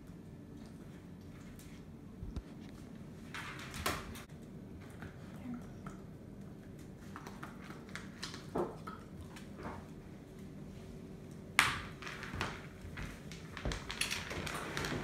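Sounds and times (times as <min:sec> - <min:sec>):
puppy claws clicking on floor: 0:11.6 - 0:15.0.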